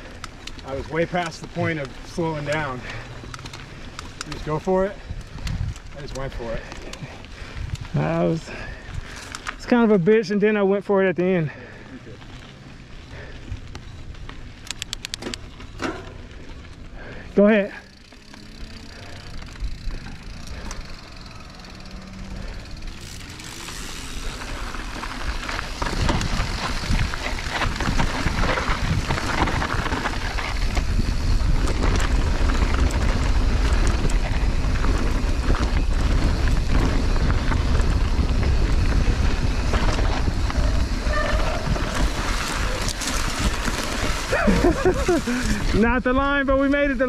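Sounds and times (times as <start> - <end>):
bike tyres crunching over dirt: 0.0 - 47.0
steady rumble: 11.6 - 46.2
bike knocks and rattles: 13.8 - 16.6, 17.5 - 45.8.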